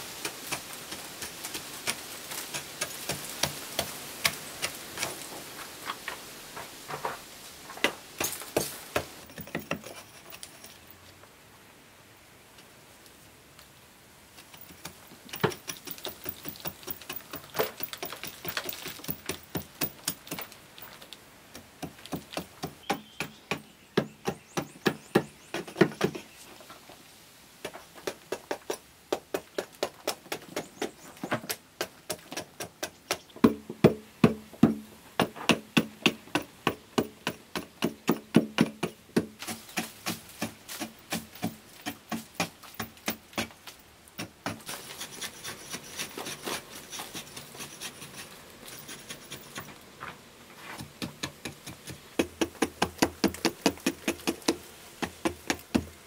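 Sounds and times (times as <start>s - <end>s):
hand tool tapping on earthen wall: 0.2s - 5.2s, 6.9s - 9.9s, 14.5s - 20.9s, 21.5s - 26.3s, 27.6s - 43.6s, 50.8s - 56.0s.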